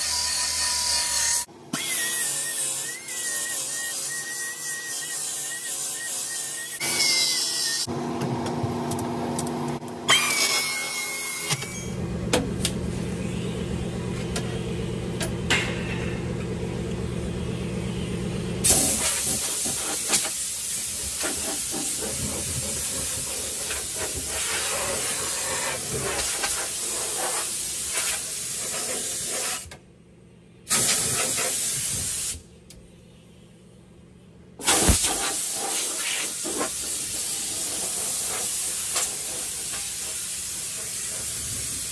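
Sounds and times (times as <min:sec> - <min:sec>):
pneumatic tool on sheet metal: 0:00.0 - 0:07.9, 0:10.1 - 0:12.0, 0:18.6 - 0:29.8, 0:30.7 - 0:32.4, 0:34.6 - 0:41.9.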